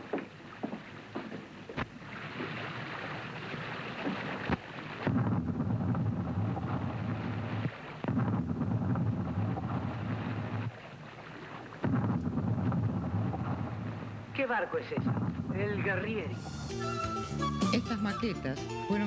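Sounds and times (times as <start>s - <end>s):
sea waves: 0.0s - 8.1s, 8.8s - 11.8s
wind: 0.0s - 17.4s
heavy low rumble: 5.1s - 10.7s, 11.8s - 16.8s.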